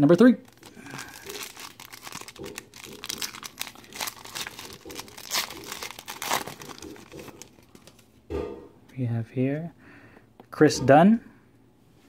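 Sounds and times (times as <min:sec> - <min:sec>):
foil wrapper tearing and crinkling: 0:00.4 - 0:08.0.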